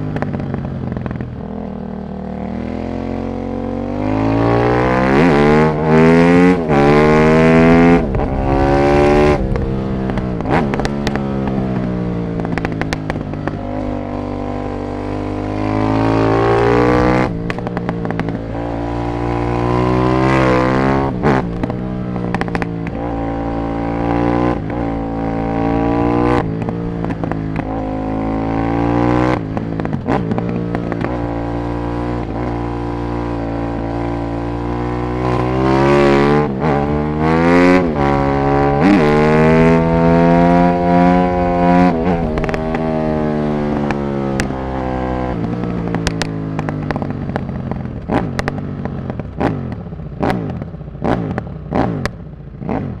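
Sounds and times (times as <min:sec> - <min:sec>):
motorcycle engine accelerating: 0:00.0 - 0:53.0
exhaust pops and crackles: 0:09.4 - 0:13.6, 0:17.4 - 0:18.5, 0:21.4 - 0:23.0, 0:26.4 - 0:27.7, 0:41.3 - 0:42.9, 0:43.7 - 0:44.6, 0:45.4 - 0:52.2.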